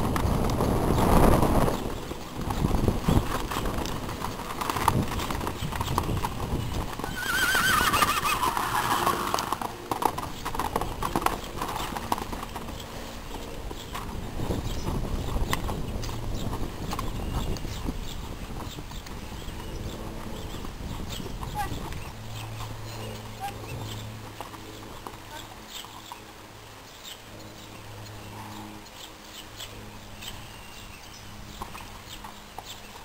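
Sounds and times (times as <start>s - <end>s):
horse whinnying: 7.0s - 9.6s.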